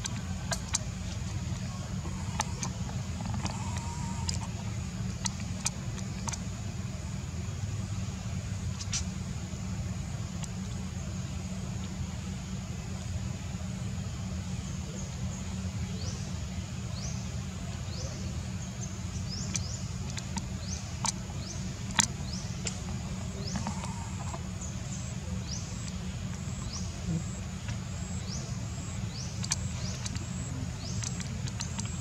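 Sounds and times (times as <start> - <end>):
steady low rumble: 0.0 - 32.0
sharp clicks: 29.4 - 32.0.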